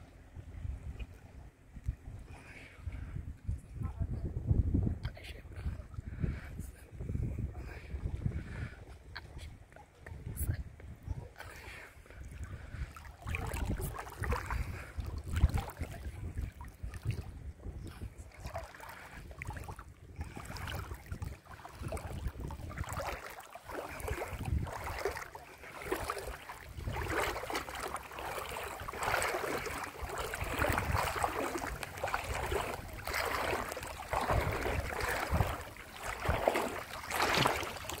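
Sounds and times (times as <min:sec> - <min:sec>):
wind buffeting microphone: 0:00.0 - 0:38.0
waves lapping and splashing: 0:11.2 - 0:38.0.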